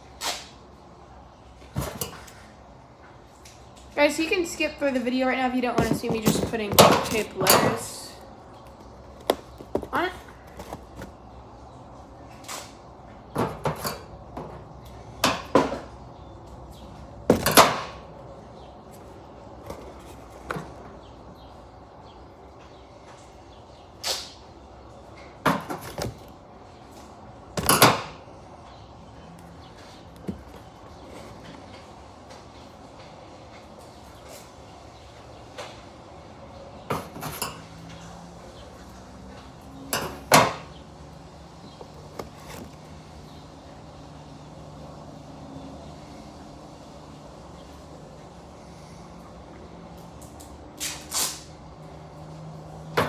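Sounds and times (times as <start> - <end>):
duct tape ripping: 50.8 - 51.5.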